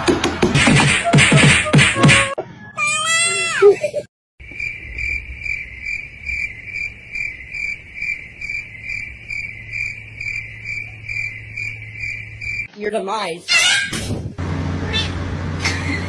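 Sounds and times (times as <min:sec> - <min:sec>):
cricket chirping: 0:04.4 - 0:12.7.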